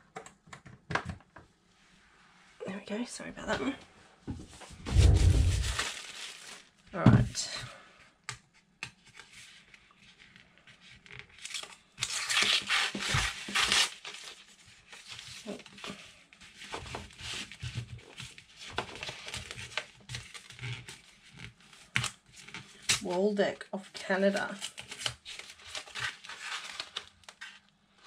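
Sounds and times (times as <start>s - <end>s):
paper rustling and crinkling: 4.4s - 6.8s, 8.9s - 23.2s, 23.9s - 28.0s
paper tearing: 4.9s - 6.7s, 11.4s - 14.4s.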